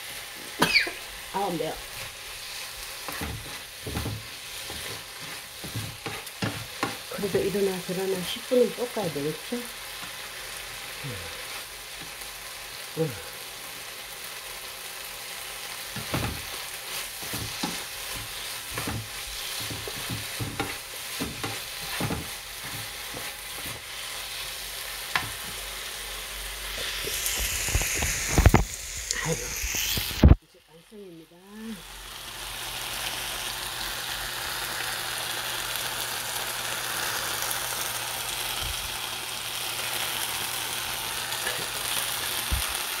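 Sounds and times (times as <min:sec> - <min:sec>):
food sizzling in a frying pan: 0:00.0 - 0:43.0
spatula scraping and knocking pan: 0:03.0 - 0:07.6, 0:15.9 - 0:23.9.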